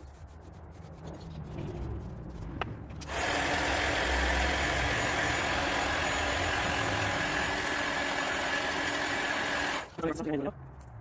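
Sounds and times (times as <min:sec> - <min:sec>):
heat gun blowing air: 0:03.0 - 0:09.9.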